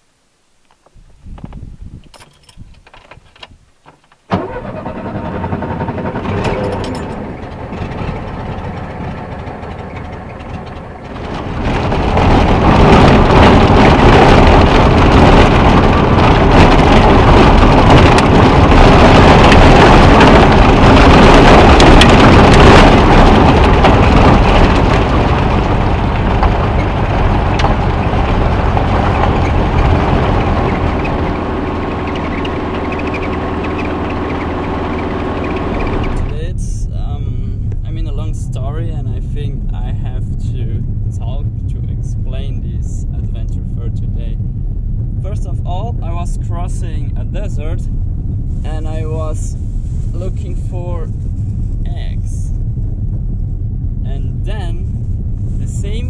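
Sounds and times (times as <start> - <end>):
road and wind noise: 0.1 - 56.0
car engine from inside cabin: 4.3 - 36.7.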